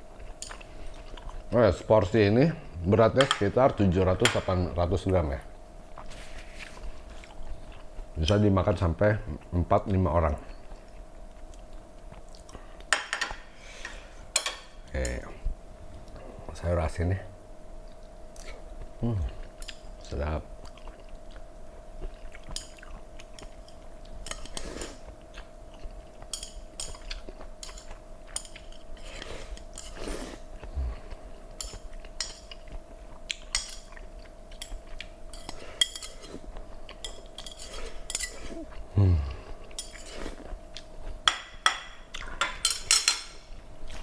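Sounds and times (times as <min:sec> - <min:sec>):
faint steady hum: 0:00.0 - 0:44.0
chewing: 0:17.8 - 0:41.2
chopsticks scraping plates: 0:27.6 - 0:30.4, 0:34.6 - 0:38.7.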